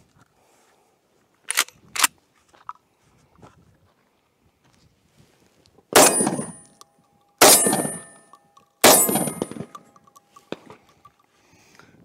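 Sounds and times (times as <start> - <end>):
shotgun shots: 6.0 - 6.6, 7.4 - 8.2, 8.8 - 9.7
metallic ringing of steel targets: 6.0 - 11.3.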